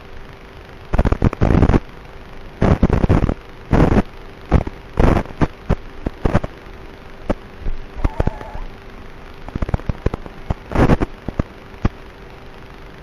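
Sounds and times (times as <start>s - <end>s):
crackling static bursts: 0.0s - 13.0s
faint steady hum and hiss: 0.0s - 13.0s.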